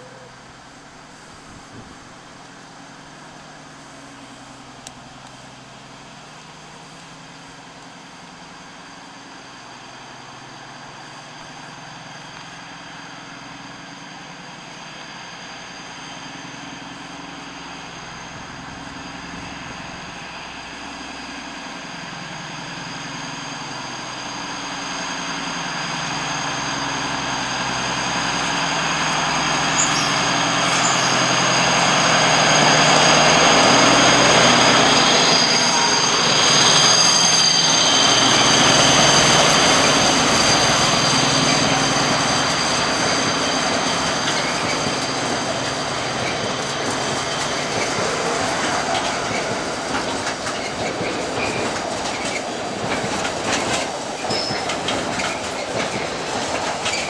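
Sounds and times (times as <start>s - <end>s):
locomotive whine and engine drone: 0.0s - 57.0s
rolling wheel noise: 46.2s - 57.0s.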